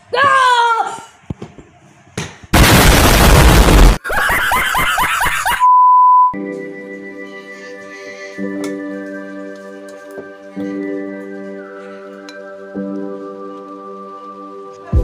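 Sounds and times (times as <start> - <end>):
loud blast of noise: 2.6 - 4.0
steady beep tone: 5.6 - 6.4
soft keyboard music: 6.4 - 15.0.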